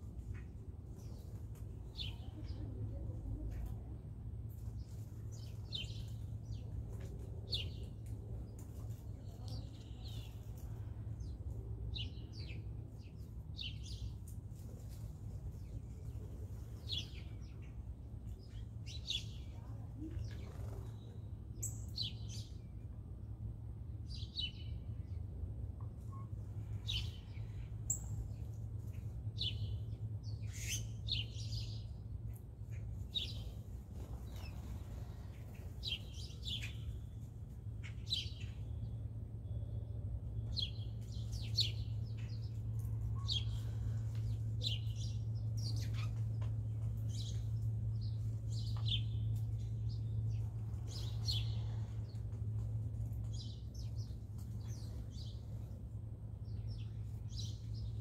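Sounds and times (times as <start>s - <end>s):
steady low hum: 0.0s - 58.0s
birds chirping: 26.1s - 58.0s.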